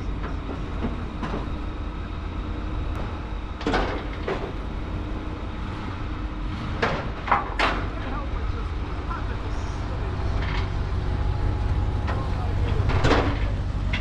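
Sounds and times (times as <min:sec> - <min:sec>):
engine idling: 0:00.0 - 0:14.0
steel ramps clunking: 0:00.0 - 0:14.0.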